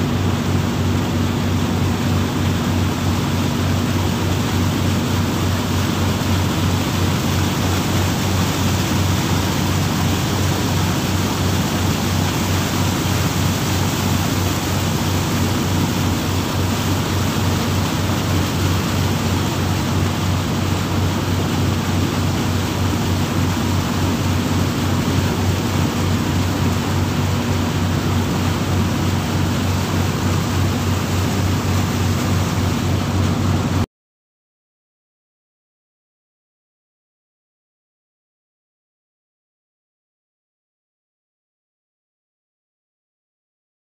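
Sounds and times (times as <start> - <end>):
boat engine humming: 0.0 - 33.9
rushing water wake: 0.0 - 33.9
wind: 0.0 - 33.9.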